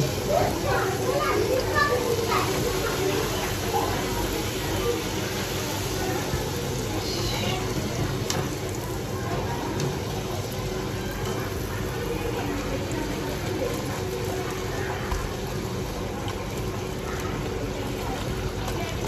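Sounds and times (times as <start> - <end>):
food deep-frying in hot oil: 0.0 - 19.0.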